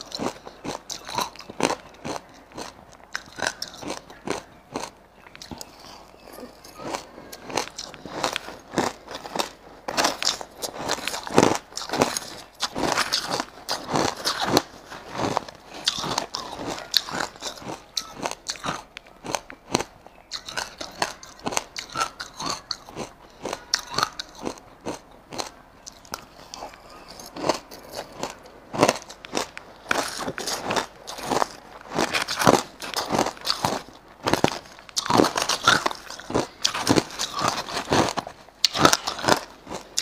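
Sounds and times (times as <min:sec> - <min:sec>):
crushed ice crunching: 0:06.5 - 0:19.4, 0:26.6 - 0:40.0.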